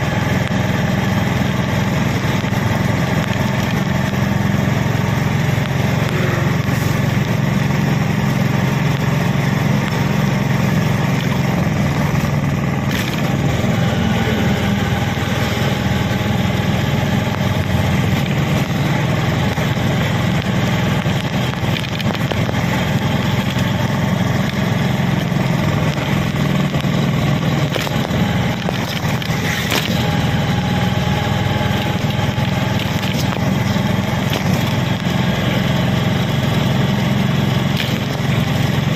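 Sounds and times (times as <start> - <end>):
road noise: 0.0 - 38.9
vehicle engine drone: 0.0 - 38.9.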